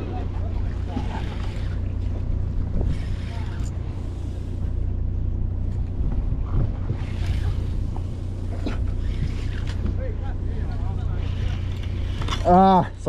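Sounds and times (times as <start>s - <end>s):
wind on microphone: 0.0s - 12.2s
boat engine hum: 0.0s - 13.0s
sea against hull: 0.0s - 13.0s.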